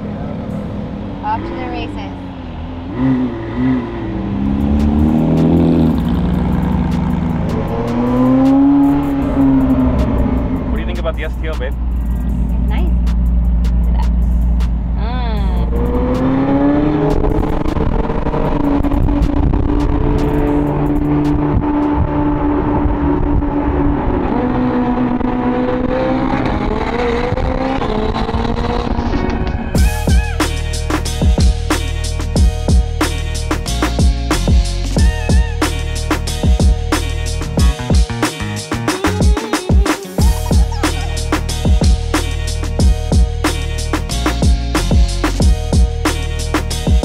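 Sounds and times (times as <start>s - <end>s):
car engine revving: 0.0s - 39.0s, 40.2s - 47.0s
background music: 29.1s - 47.0s.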